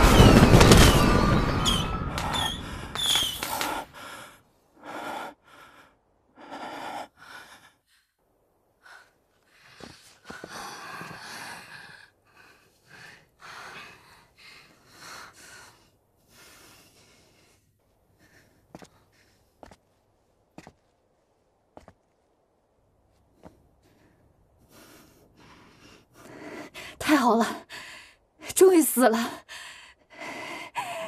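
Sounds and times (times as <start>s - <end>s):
fireworks crackling and whistling: 0.0s - 3.8s
people breathing hard and gasping: 1.9s - 20.0s, 29.4s - 31.0s.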